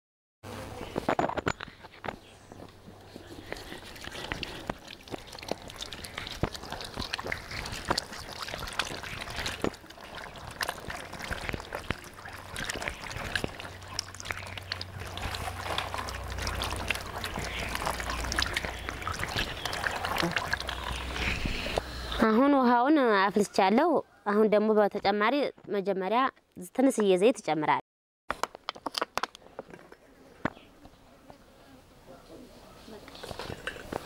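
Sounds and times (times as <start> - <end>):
hands being washed: 3.2 - 21.8
water pouring from kettle spout: 3.2 - 21.8
water splashing into plastic basin: 3.9 - 21.2.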